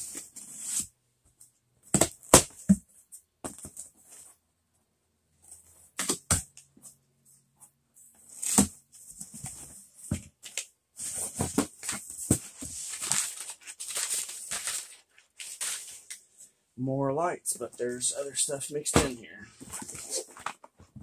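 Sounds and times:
packing paper crinkling: 12.8s - 16.1s.

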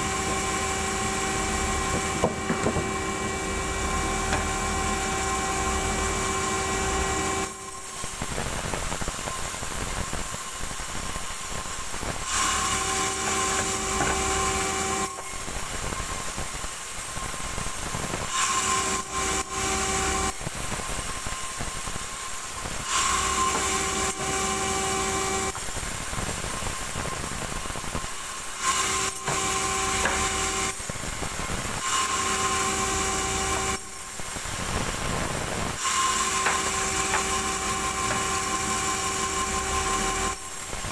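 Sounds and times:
saw blade cutting wood: 0.0s - 8.1s, 12.2s - 15.5s, 18.3s - 20.4s, 22.8s - 25.6s, 28.6s - 30.9s, 31.8s - 34.1s, 35.8s - 40.9s
band saw whine: 0.0s - 10.2s, 12.2s - 25.7s, 28.1s - 40.9s.

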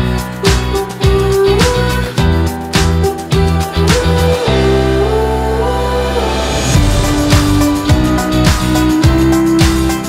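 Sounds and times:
background music with sustained chords: 2.5s - 10.0s.

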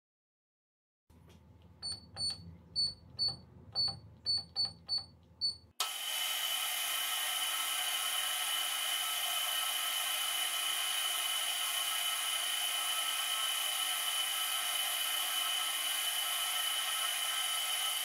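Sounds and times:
keypad beeps: 1.8s - 5.7s.

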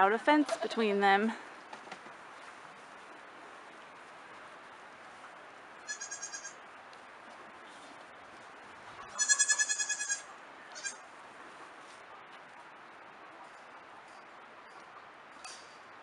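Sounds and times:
goat kids bleating: 5.8s - 6.6s, 9.0s - 11.0s.

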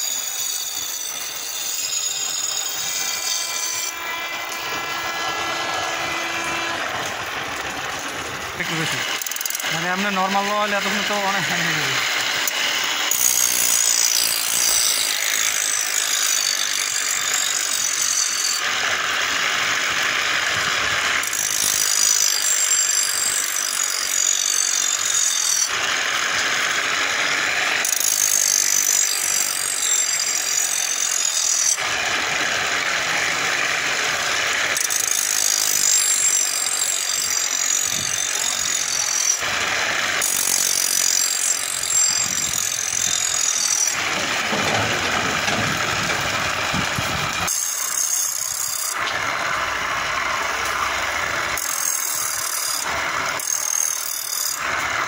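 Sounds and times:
grinding wheel sharpening blade: 0.0s - 55.0s
chain and belt drive rattling: 27.8s - 31.8s, 34.6s - 39.5s, 40.2s - 49.2s.

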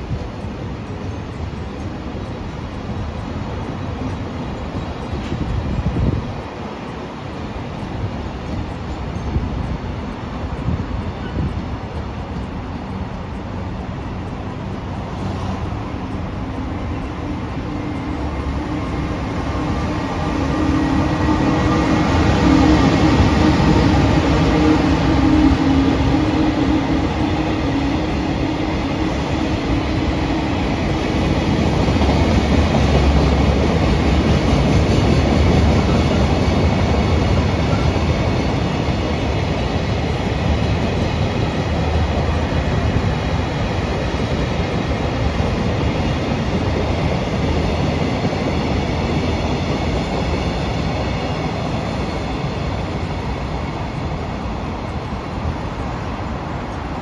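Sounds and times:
train running by: 0.0s - 57.0s
humming tone: 8.4s - 32.4s.

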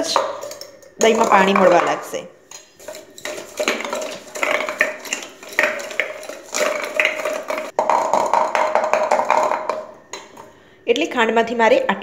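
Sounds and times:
metal stirrer scraping steel pot: 0.0s - 7.8s
ringing of steel pot: 0.0s - 10.4s.

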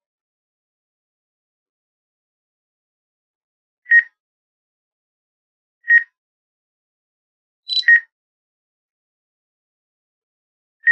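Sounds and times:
high brief chirp: 7.7s - 8.0s
short electronic alert beeps: 7.7s - 8.0s.

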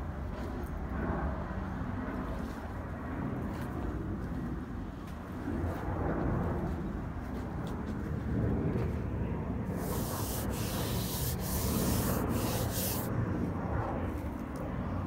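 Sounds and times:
hand rubbing on stucco wall: 9.8s - 13.1s.

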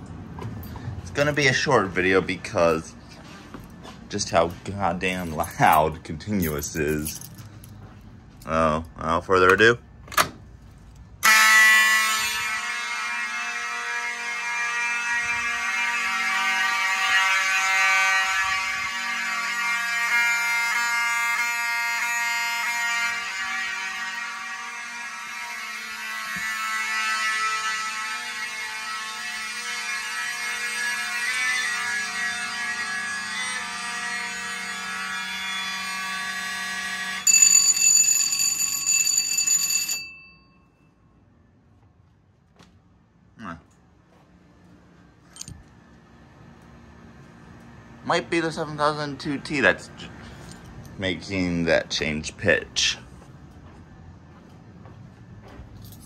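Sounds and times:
fire alarm horns blaring: 0.6s - 7.3s, 11.1s - 41.7s, 44.1s - 53.2s
high ringing tones: 35.2s - 41.3s.

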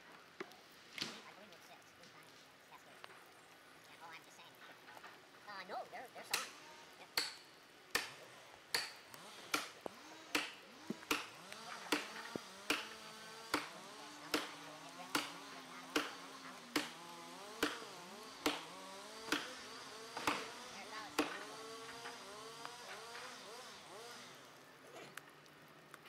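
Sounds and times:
axe hammering on tree trunk: 6.3s - 6.6s, 7.2s - 22.7s.

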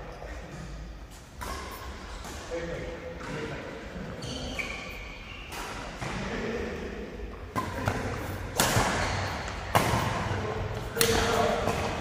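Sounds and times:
rackets hitting shuttlecock: 7.4s - 12.0s.

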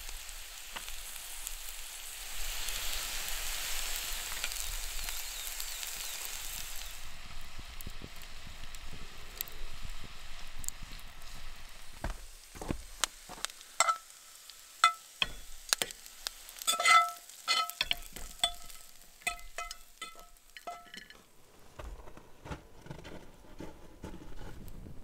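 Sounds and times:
metal utensil clinking on plate: 13.8s - 14.1s, 16.7s - 21.2s.

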